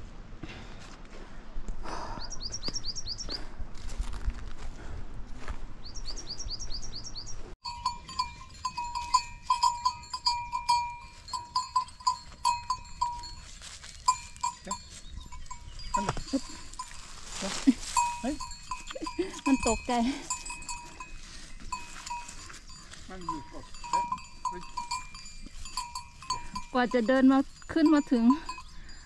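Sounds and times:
small bird chirping: 0:02.2 - 0:03.4, 0:14.0 - 0:16.6
goat bells clanking: 0:07.6 - 0:29.0.

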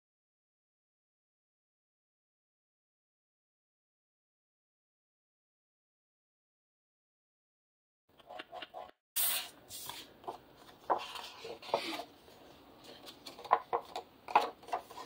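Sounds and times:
paper rustling: 0:09.7 - 0:15.0.

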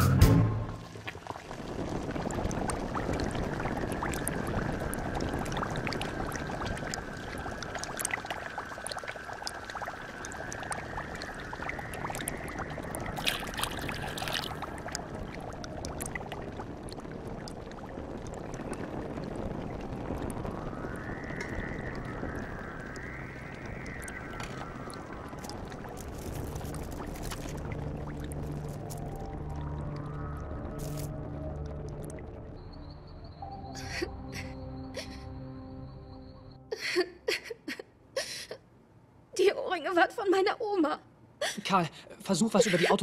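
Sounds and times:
liquid pouring: 0:00.8 - 0:20.4, 0:21.4 - 0:32.4
thick liquid bubbling in pot: 0:00.8 - 0:32.7.

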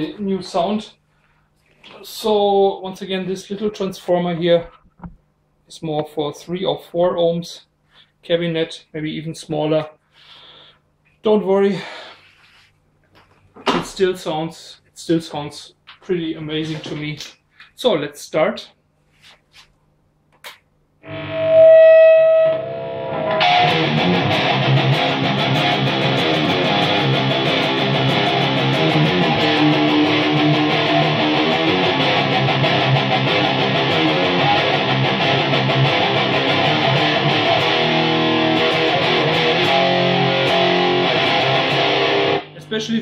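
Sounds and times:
distorted electric guitar: 0:21.0 - 0:43.0.

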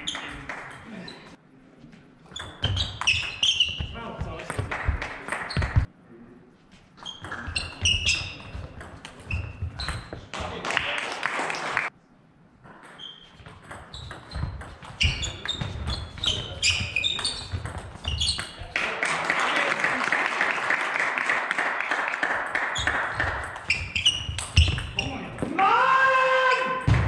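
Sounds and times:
shoes squeaking: 0:00.0 - 0:04.4, 0:05.4 - 0:05.9, 0:06.7 - 0:10.3, 0:12.9 - 0:18.7, 0:22.8 - 0:25.6.

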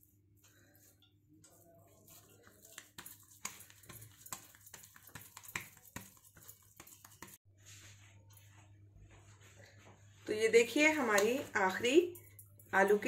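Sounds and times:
hands patting potato mixture: 0:00.1 - 0:07.4.

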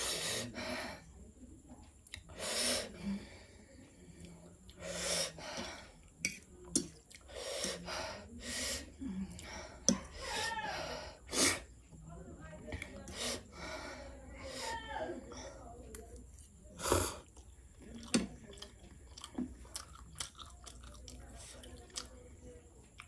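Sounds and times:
sharp hissing breaths: 0:00.0 - 0:01.1, 0:02.3 - 0:03.4, 0:04.8 - 0:06.0, 0:07.3 - 0:11.7, 0:13.1 - 0:14.8.

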